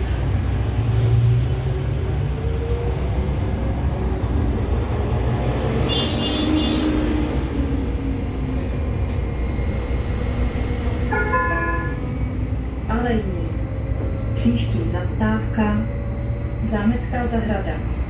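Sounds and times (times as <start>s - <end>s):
trolleybus tyres rumbling on road: 0.0s - 17.9s
high-pitched tone: 9.2s - 18.0s.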